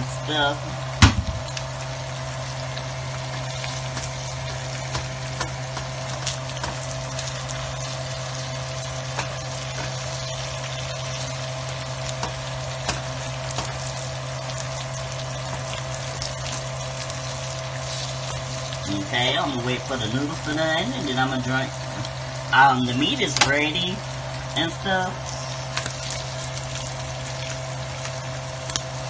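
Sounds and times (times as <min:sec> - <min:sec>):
meat sizzling in a frying pan: 0:00.0 - 0:29.0
steady low hum: 0:00.0 - 0:29.0
sharp knock: 0:01.0 - 0:01.4.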